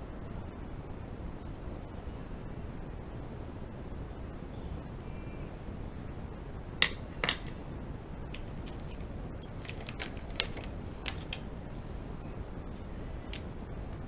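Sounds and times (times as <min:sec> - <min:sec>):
pen clicks and taps on paper: 0:06.8 - 0:07.6, 0:08.3 - 0:11.4.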